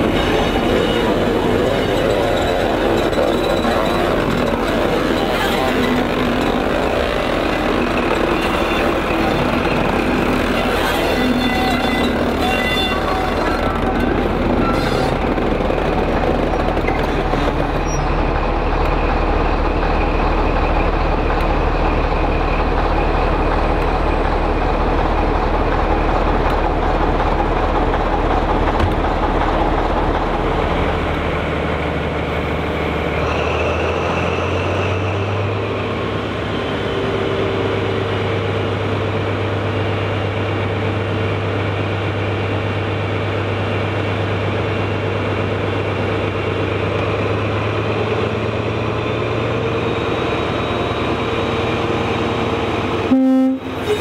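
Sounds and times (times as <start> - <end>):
diesel locomotive engines idling: 0.0 - 54.0.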